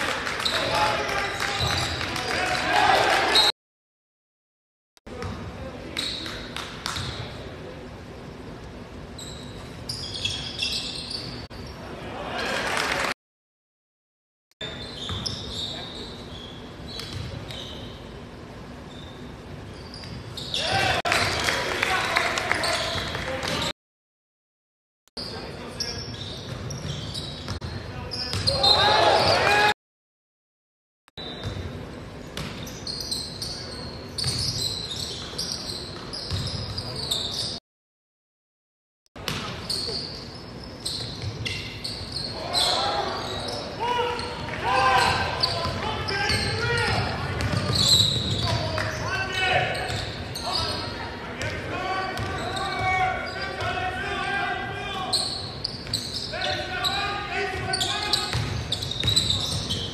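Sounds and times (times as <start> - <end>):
sneakers squeaking: 0.4 - 2.4, 5.1 - 7.5, 8.1 - 12.0, 14.6 - 21.0, 22.6 - 23.7, 25.2 - 29.5, 31.2 - 37.6, 39.2 - 59.9
shoes squeaking on hardwood floor: 45.0 - 49.0, 57.7 - 59.9.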